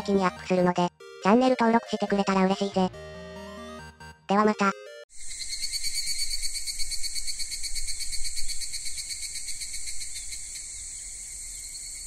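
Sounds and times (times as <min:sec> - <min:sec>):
insect chirring: 0:05.1 - 0:12.0.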